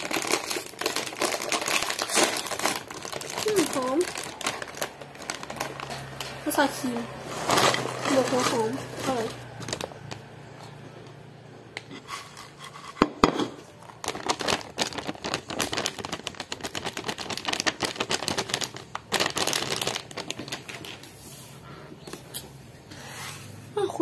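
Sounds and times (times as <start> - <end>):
chip bag crinkling: 0.0 - 10.6, 13.8 - 21.2.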